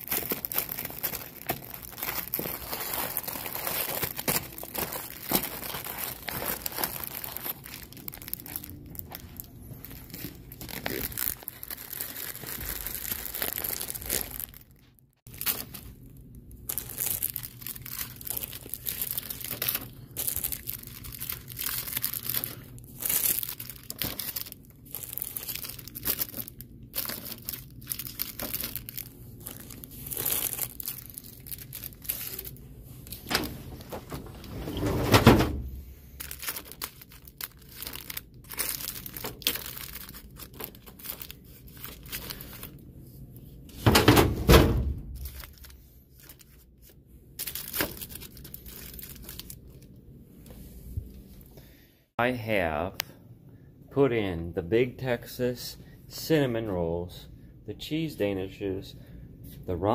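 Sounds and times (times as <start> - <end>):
plastic packets crinkling: 0.0 - 42.9, 45.0 - 50.0.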